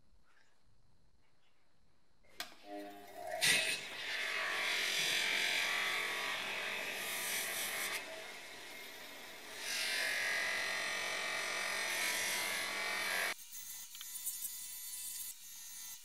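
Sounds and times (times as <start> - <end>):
bench grinder motor running: 2.7 - 13.4
compound hissing on polishing wheel: 3.4 - 13.4.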